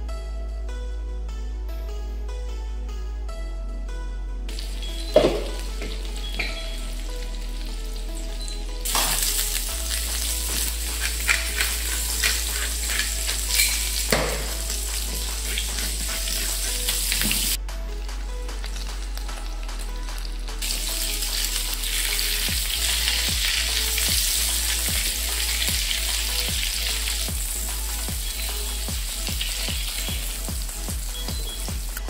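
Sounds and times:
patties sizzling in frying pan: 4.5 - 17.6, 20.2 - 32.0
sharp crackles of fat: 4.5 - 17.6, 18.5 - 30.5.

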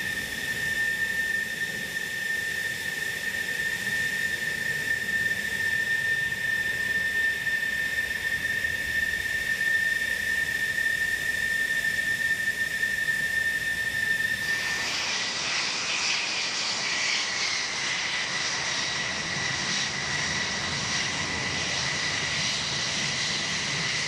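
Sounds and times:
jet engine idling: 0.0 - 24.0.

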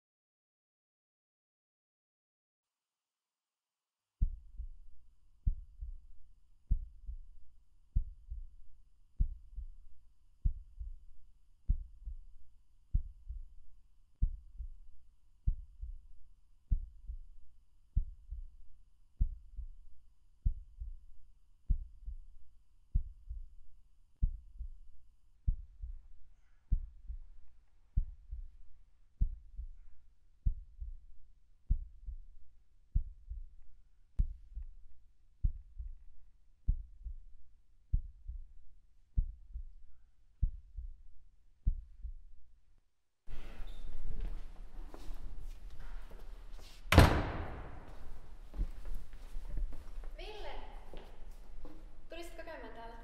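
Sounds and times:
slow heartbeat thumps: 4.2 - 42.4, 46.9 - 52.2.

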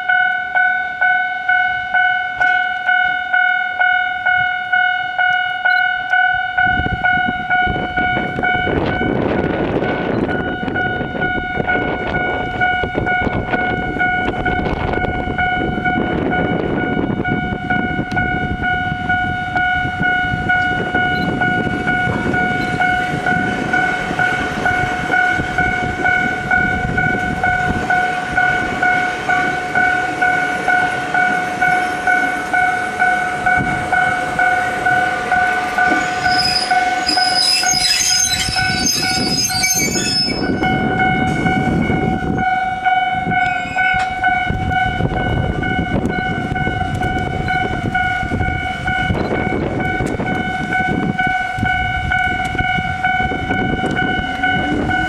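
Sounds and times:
level crossing alarm ringing: 0.0 - 55.0
train wheels and motors rumbling: 4.1 - 55.0
wheel squeals and clicks: 35.9 - 40.6.

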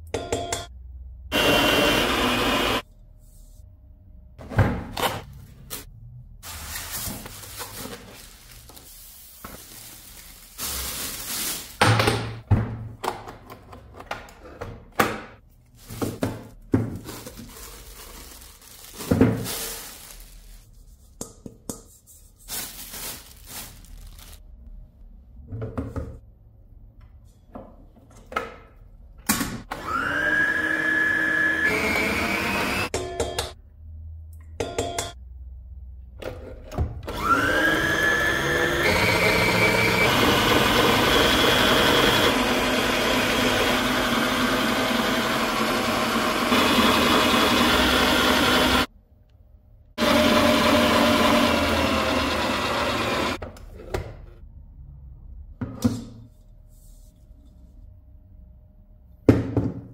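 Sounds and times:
plastic wrap rustling: 5.2 - 12.1, 15.5 - 21.1, 22.2 - 24.6
mixer parts knocking and clattering: 11.6 - 18.2.

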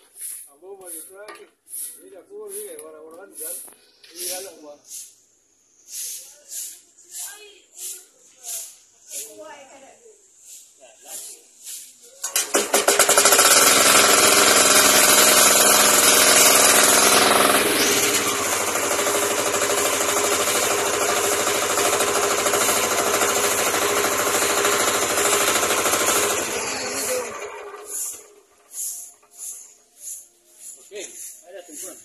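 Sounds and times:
diesel engine running: 12.7 - 28.7.

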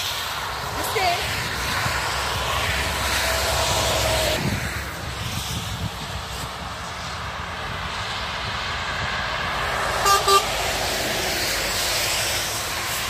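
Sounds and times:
motorway traffic on wet road: 0.0 - 13.0
truck horn toots: 10.0 - 10.6.

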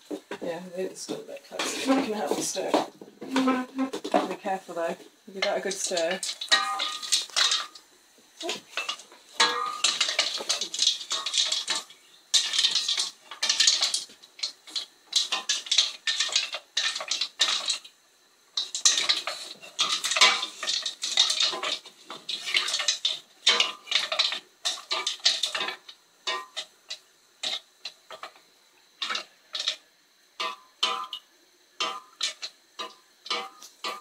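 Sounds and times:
stones scraping metal saucepan: 1.5 - 2.7, 5.4 - 7.8, 8.4 - 17.8, 18.6 - 26.6, 31.8 - 34.0.

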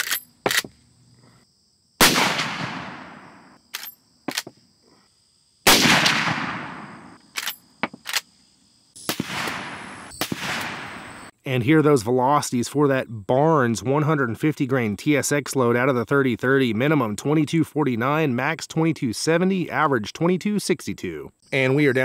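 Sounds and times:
rifle lever metallic clicks: 0.0 - 0.7, 3.7 - 4.5, 7.3 - 8.3
dull gunshot report: 2.0 - 3.4, 5.7 - 7.2, 9.0 - 11.3
rifle shots with echo: 2.0 - 3.5, 5.7 - 7.2, 9.0 - 11.3.

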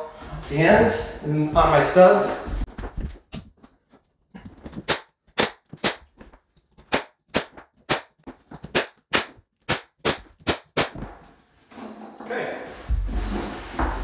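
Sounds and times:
nail gun firing: 6.9 - 8.1, 8.7 - 11.0.

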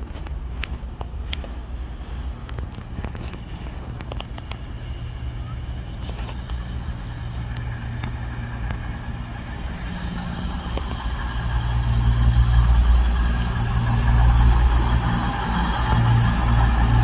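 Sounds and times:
vehicle engine droning: 0.0 - 17.0.

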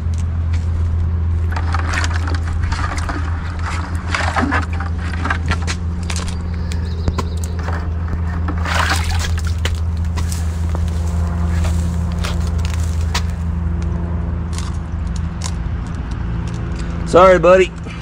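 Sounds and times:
vehicle engine idling: 0.0 - 18.0
crabs clicking and scraping: 0.9 - 17.1
water sloshing in bucket: 1.3 - 13.4.

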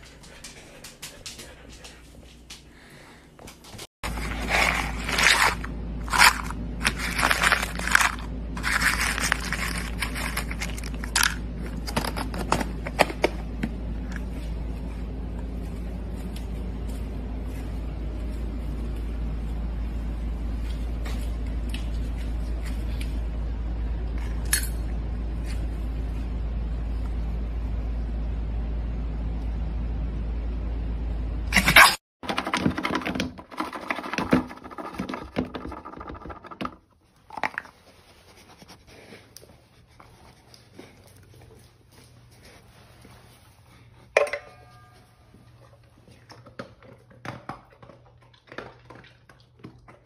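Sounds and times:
steady low hum: 0.0 - 32.0
kibble rattling in plastic cup: 4.1 - 11.4, 32.2 - 37.7.

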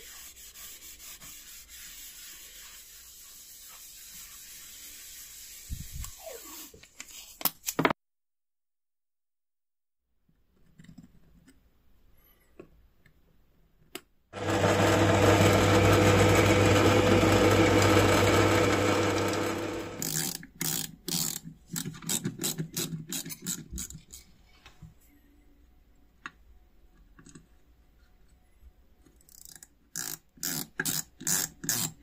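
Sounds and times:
drill press motor humming: 14.4 - 20.0.

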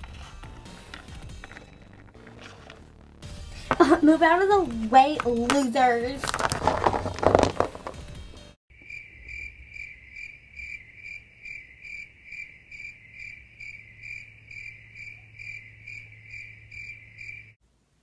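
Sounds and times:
crickets chirping: 8.7 - 17.6.

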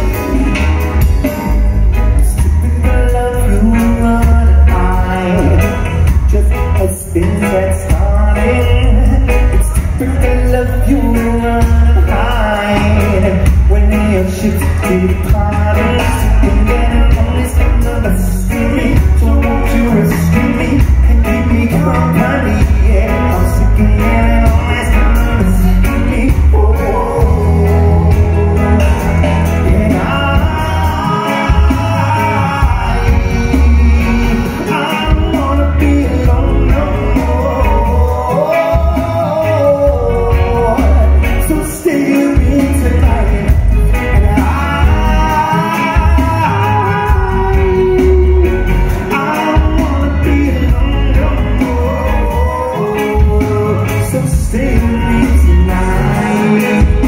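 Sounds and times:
bass guitar: 0.0 - 57.0
drum kit: 0.0 - 57.0
electric guitars: 0.0 - 57.0
lead singer: 0.0 - 57.0.

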